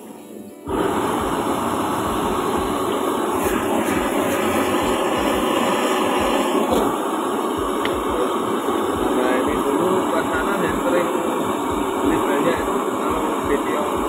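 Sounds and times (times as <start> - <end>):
gas burner roaring: 0.6 - 14.0
spatula tapping wok: 1.2 - 9.7.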